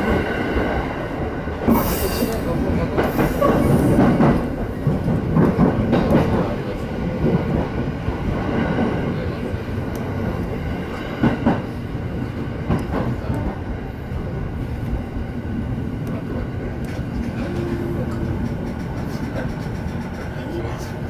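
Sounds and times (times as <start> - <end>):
train rumble: 0.0 - 21.0.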